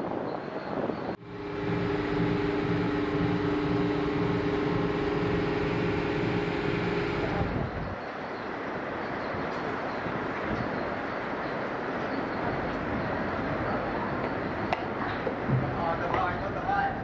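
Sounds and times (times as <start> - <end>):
dull background hum: 1.2 - 8.0
machinery humming and throbbing: 1.2 - 8.1.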